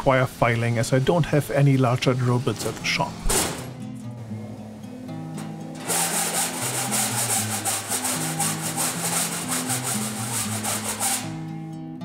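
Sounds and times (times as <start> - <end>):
background music: 0.0 - 12.0
round file rasping in metal: 5.8 - 11.4.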